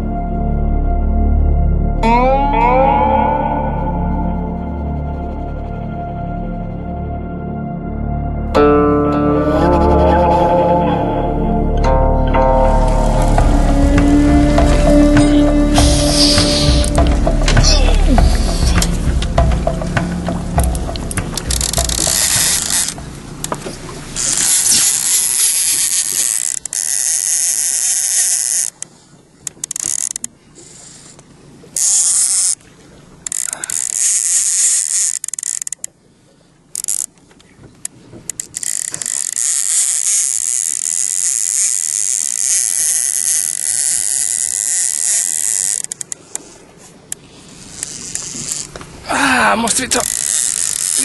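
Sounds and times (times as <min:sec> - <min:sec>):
fishing reel ratcheting: 0:11.8 - 0:19.0, 0:20.6 - 0:23.6, 0:24.2 - 0:31.1, 0:31.8 - 0:32.6, 0:33.2 - 0:35.9, 0:36.7 - 0:37.1, 0:38.3 - 0:46.6, 0:47.5 - 0:48.8, 0:49.7 - 0:51.0.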